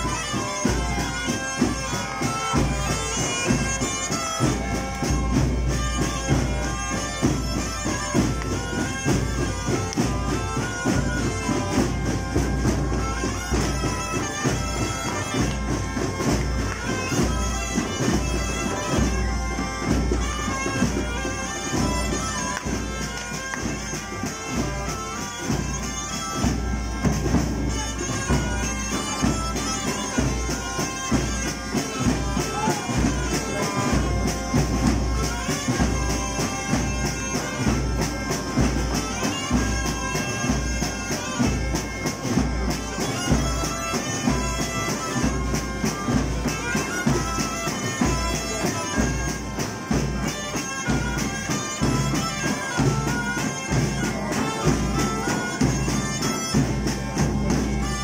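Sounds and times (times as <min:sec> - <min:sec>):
bagpipe playing folk tune: 0:00.0 - 0:58.0.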